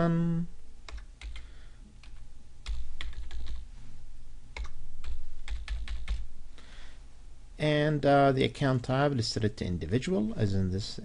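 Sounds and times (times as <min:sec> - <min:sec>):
typing on computer keyboard: 0:00.9 - 0:01.4, 0:02.0 - 0:03.6, 0:04.6 - 0:06.2.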